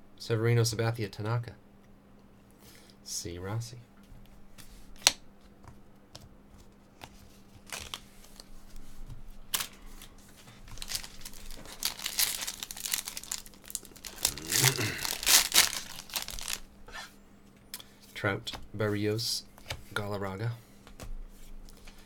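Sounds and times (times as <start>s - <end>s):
cards rustling: 6.1s - 8.9s, 9.5s - 16.7s
foil wrapper crinkling and tearing: 7.6s - 8.5s, 9.5s - 16.7s.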